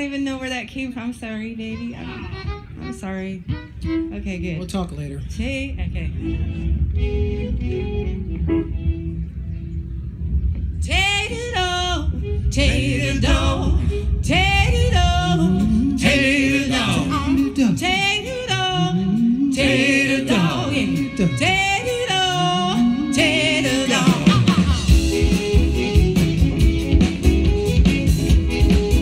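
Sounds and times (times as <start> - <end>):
walking bass line: 1.2 - 29.0
accordion: 1.4 - 4.7, 6.0 - 9.9, 15.5 - 29.0
fiddle: 1.5 - 4.6
person singing with vibrato: 10.9 - 25.2
guitars: 14.8 - 29.0.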